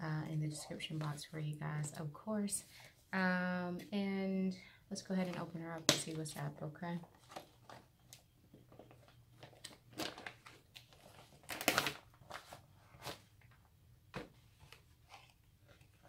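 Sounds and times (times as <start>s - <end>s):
packaging rustling: 7.1s - 13.3s.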